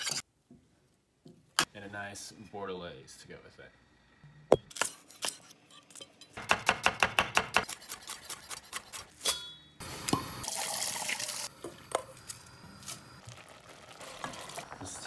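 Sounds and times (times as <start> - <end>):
knife chopping on wooden board: 6.4 - 8.8
sizzling: 7.6 - 15.0
wine pouring into hot pot: 10.3 - 11.5, 13.2 - 15.0.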